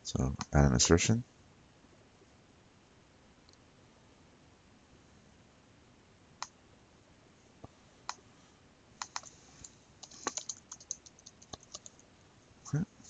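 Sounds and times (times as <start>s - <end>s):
faint steady hiss: 0.0s - 13.0s
mouse clicks: 9.0s - 9.3s
keyboard typing: 9.0s - 12.0s.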